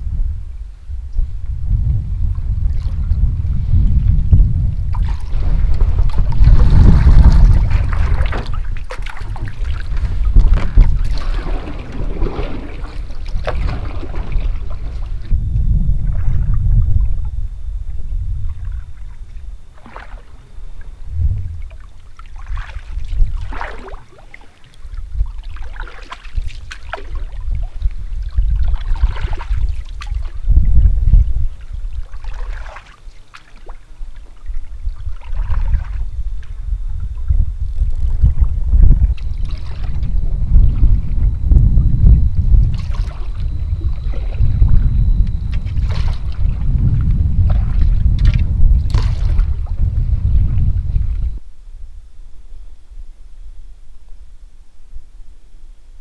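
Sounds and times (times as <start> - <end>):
heavy low rumble: 0.0 - 23.5, 34.8 - 52.2
paddle splashing in water: 4.9 - 15.4, 19.7 - 20.4, 21.6 - 30.5, 31.6 - 36.6, 39.1 - 40.1, 42.6 - 44.6, 45.5 - 51.3.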